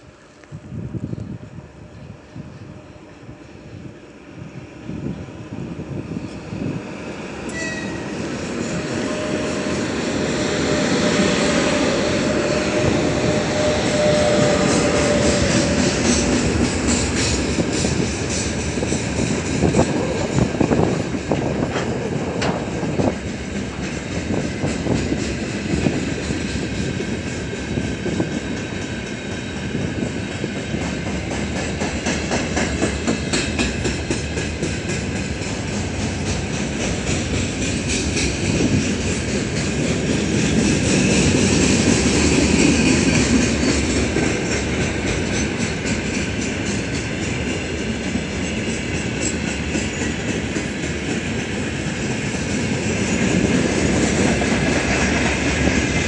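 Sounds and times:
freight train rolling past: 0.0 - 56.0
wheels clicking over rail joints: 14.9 - 25.4.

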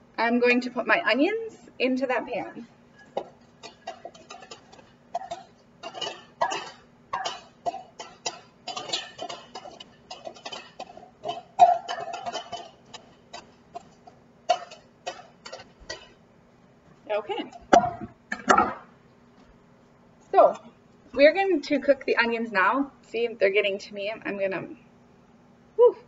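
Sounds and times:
knife scraping and tapping bowl: 3.0 - 16.2.

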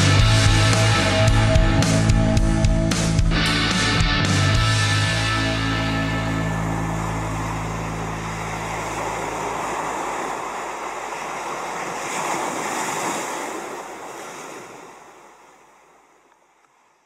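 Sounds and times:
surf breaking on beach: 5.6 - 16.2.

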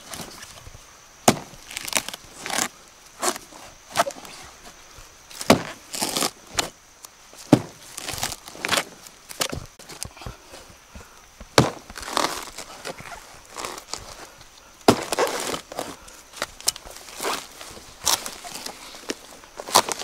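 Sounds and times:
hatchet chopping wood: 1.3 - 1.6, 5.4 - 5.8, 11.6 - 12.3, 14.8 - 15.2
wood splintering crackle: 1.3 - 4.4, 5.3 - 10.2, 11.6 - 20.0.

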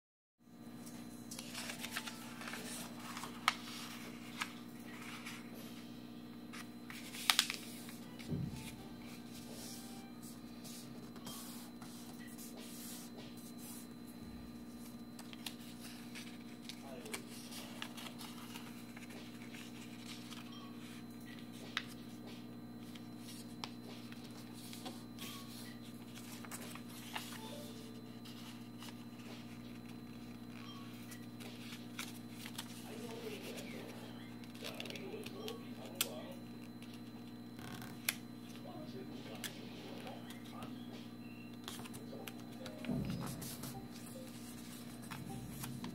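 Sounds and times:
steady low hum: 0.4 - 45.9
paper rustling and crackling: 1.4 - 5.6, 6.5 - 13.9, 14.8 - 22.0, 22.8 - 38.2.

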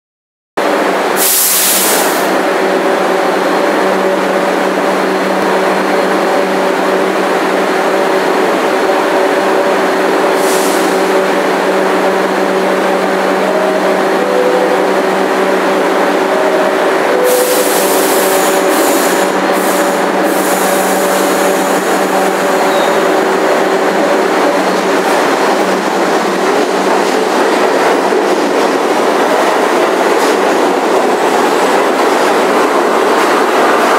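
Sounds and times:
subway train equipment humming: 0.6 - 33.9
air hissing: 1.2 - 2.4, 10.4 - 11.0.

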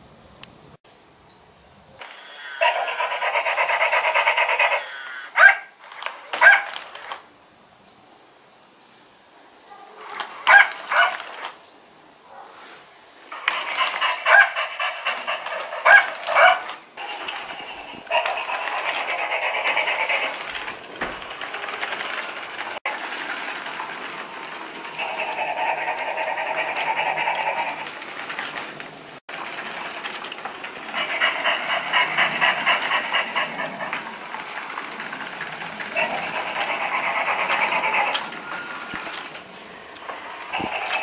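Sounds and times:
toy dog electronic yaps: 2.0 - 5.7, 6.3 - 7.0, 10.2 - 11.4, 13.3 - 20.4, 25.0 - 27.9, 35.9 - 38.8
toy walking motor rattling clicks: 2.0 - 7.3, 10.1 - 11.6, 13.3 - 41.0.

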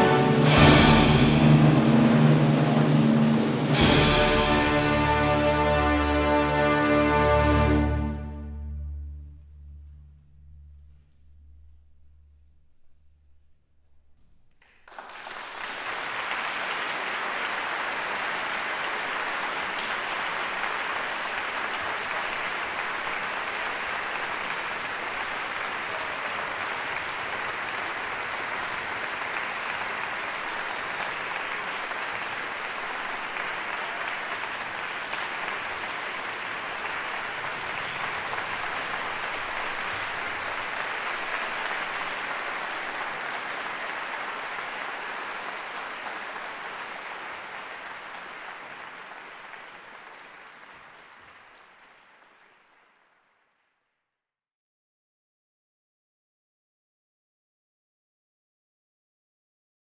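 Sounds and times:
audience applauding: 0.0 - 6.0, 14.6 - 53.8.

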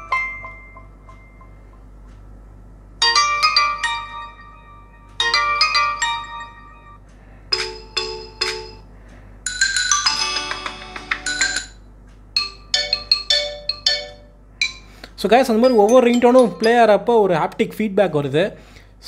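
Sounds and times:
phone ringtone melodies: 3.0 - 8.9, 9.5 - 11.8, 12.4 - 14.9, 15.6 - 17.1.

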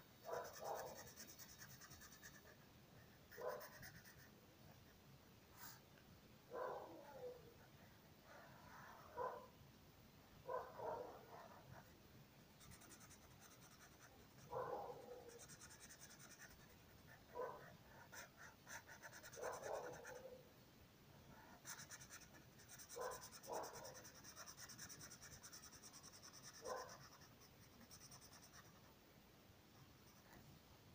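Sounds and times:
marker scratching on paper: 0.3 - 4.3, 12.6 - 20.3, 21.4 - 28.9.

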